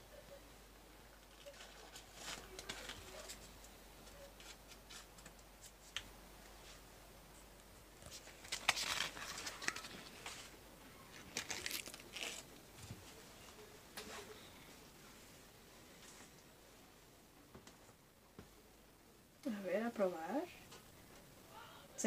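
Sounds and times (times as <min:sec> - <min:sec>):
paper wrapper crinkling: 0:01.2 - 0:03.5, 0:08.0 - 0:10.5, 0:11.1 - 0:12.7.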